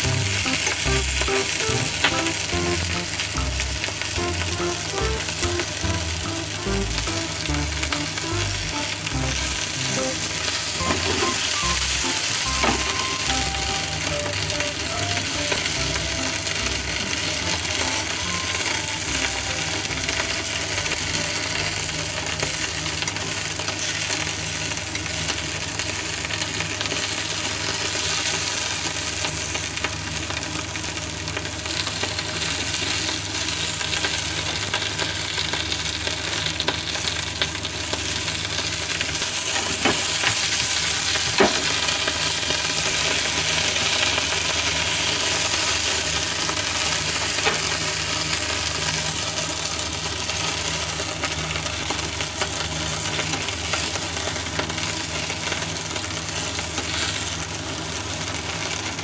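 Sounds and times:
vegetables sizzling in oil: 0.0s - 59.0s.

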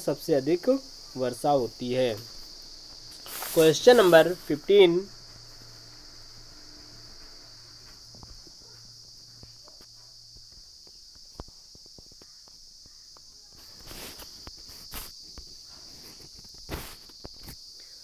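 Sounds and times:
high-pitched hiss: 0.0s - 18.0s
brief rustling: 3.0s - 4.4s.

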